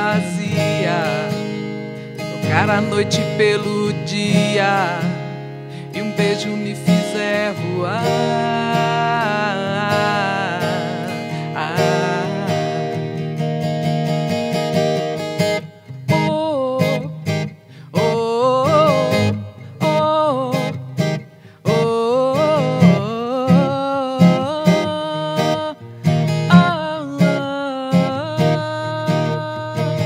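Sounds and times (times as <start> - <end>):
strummed acoustic guitar: 0.0 - 30.0
woman singing: 16.1 - 17.2, 17.9 - 20.8, 21.6 - 25.9, 26.5 - 30.0.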